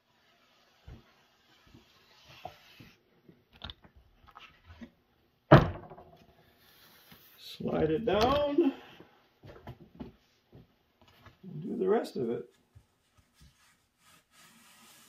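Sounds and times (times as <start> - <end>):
loud wooden knock: 5.5 - 6.2
soft rustling and taps: 9.4 - 11.4.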